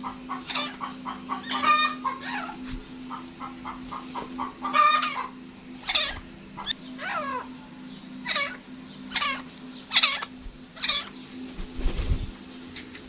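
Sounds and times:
steady low hum: 0.0s - 13.0s
francolin harsh calls: 0.3s - 2.6s, 4.4s - 11.2s.

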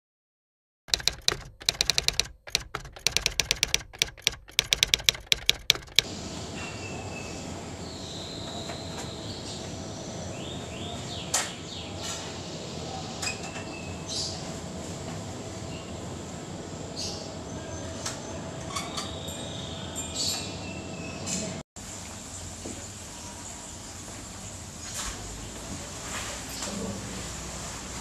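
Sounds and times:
typewriter keys clacking: 0.9s - 6.1s.

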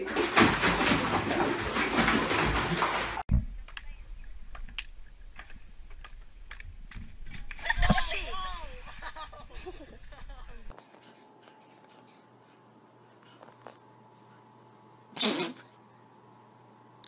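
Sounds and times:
water sloshing and splashing: 0.0s - 3.3s.

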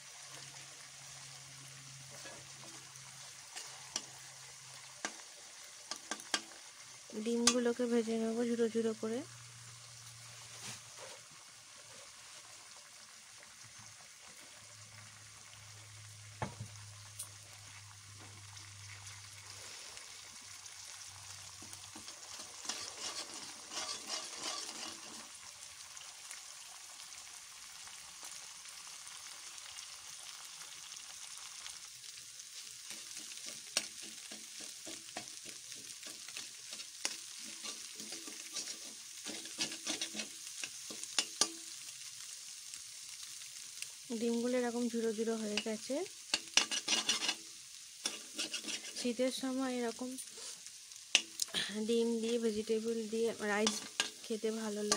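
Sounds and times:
eggs sizzling in hot oil: 0.0s - 54.9s
metal spatula scraping and tapping pan: 3.5s - 4.2s, 5.0s - 6.6s, 7.3s - 7.7s, 21.6s - 25.4s, 32.8s - 41.8s, 45.5s - 49.1s, 51.1s - 51.5s, 53.6s - 54.9s.

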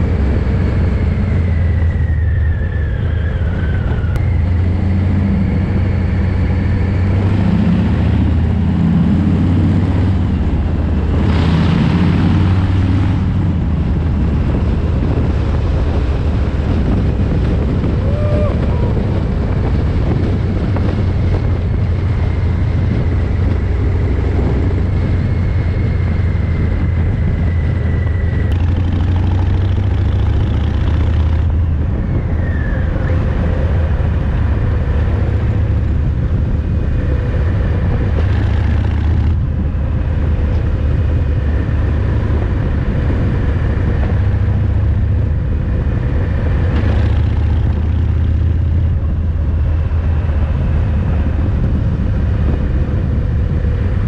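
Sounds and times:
motorcycle engine rumble: 0.0s - 54.0s
road and wind noise: 0.0s - 54.0s.

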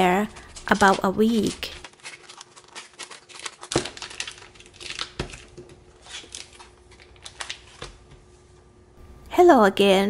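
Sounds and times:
plastic bag crinkling: 0.3s - 8.0s.

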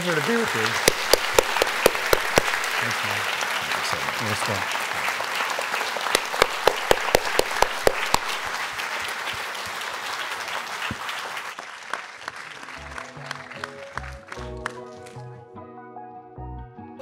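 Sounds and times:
sharp claps close to microphone: 0.0s - 15.2s
audience applause: 0.0s - 15.3s
music with held notes: 12.6s - 17.0s.

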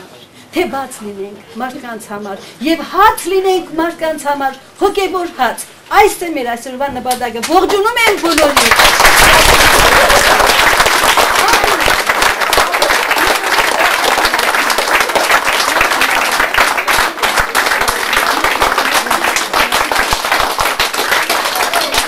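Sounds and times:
crowd applauding: 8.2s - 22.0s.

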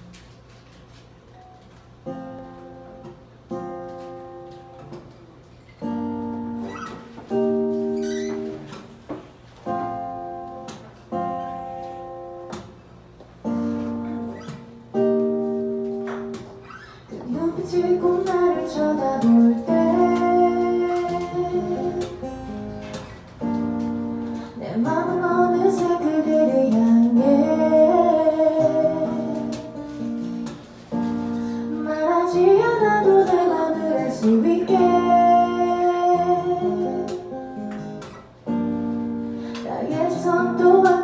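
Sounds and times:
acoustic guitar chords: 1.4s - 41.0s
woman singing: 17.1s - 22.5s, 24.5s - 30.0s, 31.7s - 37.5s, 39.6s - 41.0s.

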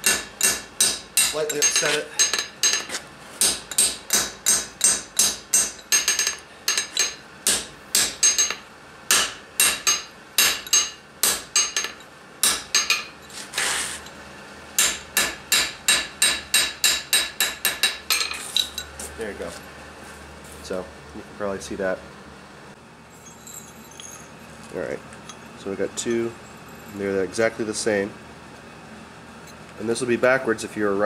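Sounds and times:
hammer striking hot steel on anvil: 0.0s - 13.2s, 14.8s - 18.4s.

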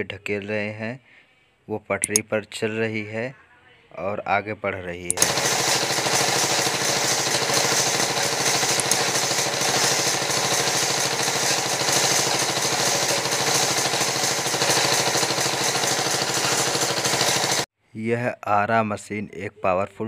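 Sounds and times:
band saw cutting log: 5.2s - 17.7s.

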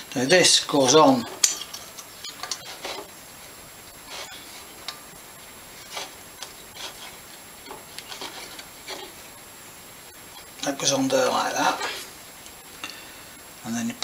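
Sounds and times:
metal scraping and clicking: 0.8s - 3.2s, 5.7s - 9.2s.

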